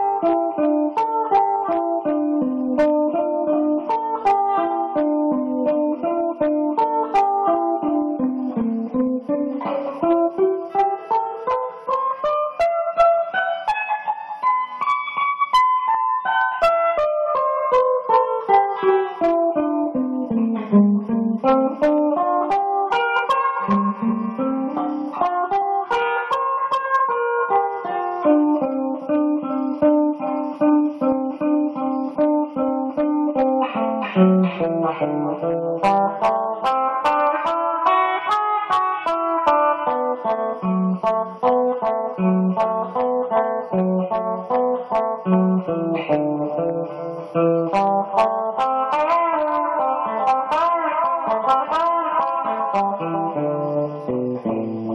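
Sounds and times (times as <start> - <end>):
solo guitar: 0.0 - 54.9.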